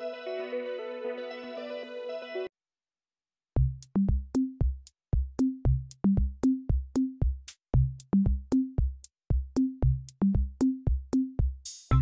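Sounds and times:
drum machine beat: 3.6 - 12.0.

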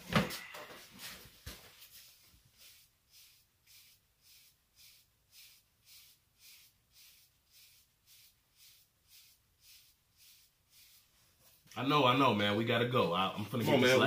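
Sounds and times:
brush stroking over hair: 0.8 - 11.8.

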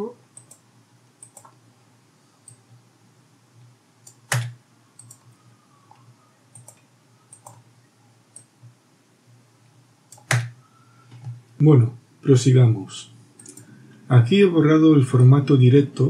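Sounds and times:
faint low hum: 0.0 - 16.0
mouse and keyboard clicks: 4.1 - 5.3, 5.9 - 7.6, 10.1 - 11.4
loud key press: 4.2 - 4.6, 10.2 - 10.5.

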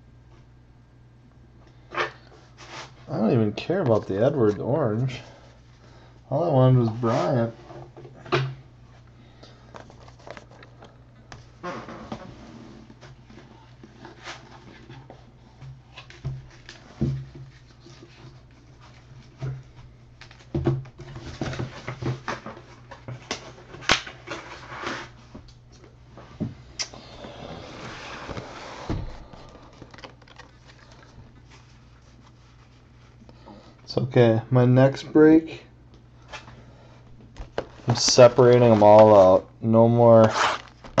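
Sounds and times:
low electrical hum: 0.0 - 41.0
cardboard and wrapper rustling: 9.7 - 11.0, 27.1 - 33.2, 40.2 - 41.0.

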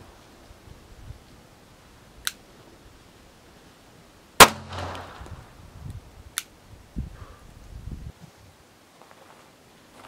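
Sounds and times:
pistol shot: 4.4 - 5.3.

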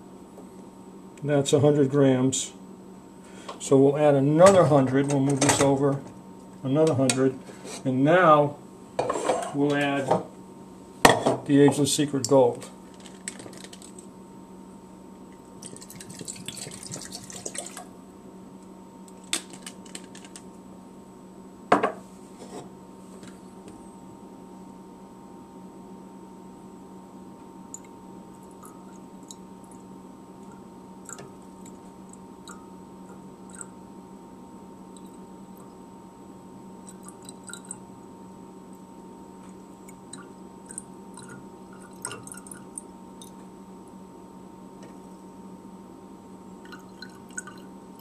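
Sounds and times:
low room hum: 0.0 - 48.0
liquid trickling into glass flask: 15.6 - 17.9, 36.8 - 37.8, 46.6 - 47.7.

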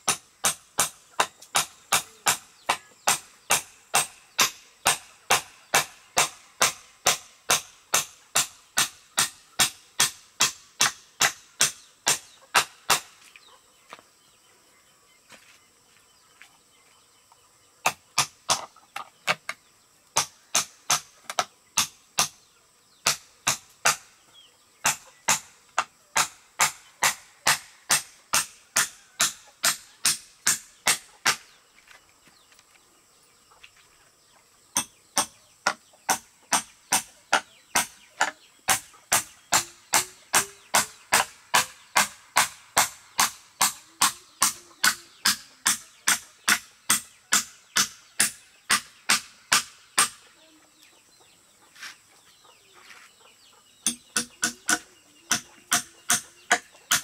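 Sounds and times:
sharp hand tool strikes: 0.0 - 13.2, 17.8 - 19.5, 20.2 - 24.2, 24.8 - 31.6, 34.7 - 50.2, 53.8 - 57.0.

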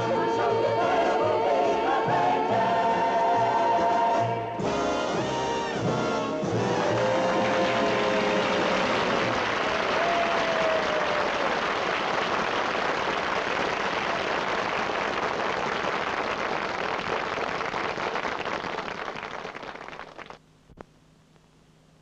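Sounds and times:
audience applauding: 6.9 - 20.4.

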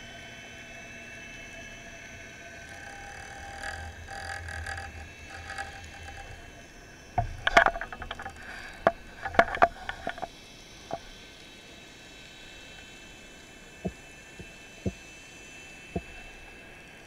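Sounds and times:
faint underwater hum: 0.0 - 17.0
sharp clicks and knocks: 2.6 - 6.5, 7.2 - 10.3.

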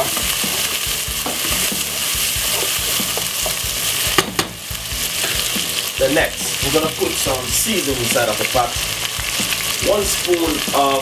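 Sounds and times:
wooden spoon stirring and scraping: 0.0 - 4.2
vegetables sizzling in hot oil: 0.0 - 11.0.

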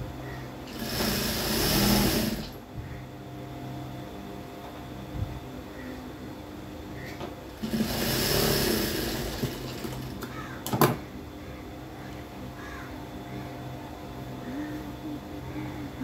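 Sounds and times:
steady hum: 0.0 - 16.0
sewing machine stitching: 0.7 - 2.6, 7.6 - 10.1.

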